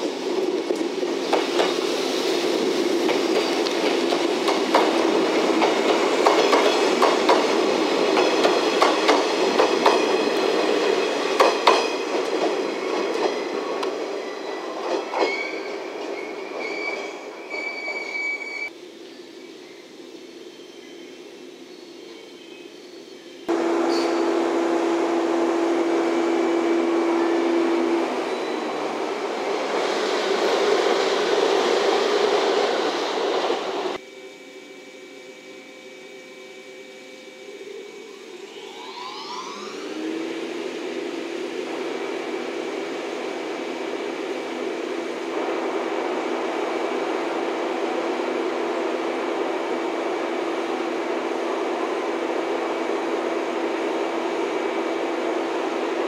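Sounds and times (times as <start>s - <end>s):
electric train moving: 0.0s - 56.0s
train equipment whining hum: 0.0s - 56.0s.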